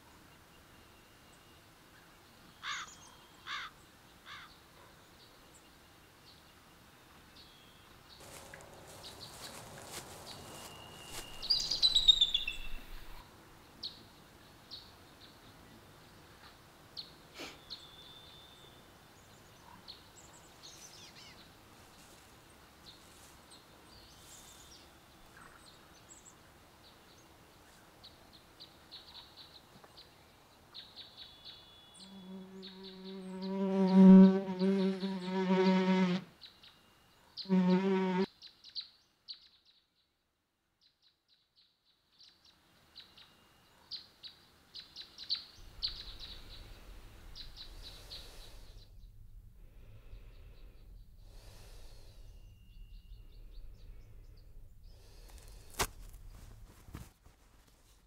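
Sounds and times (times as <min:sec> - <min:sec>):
faint background hiss: 0:00.0 - 0:33.5, 0:41.6 - 0:58.0
bird chirps and calls: 0:09.0 - 0:13.2.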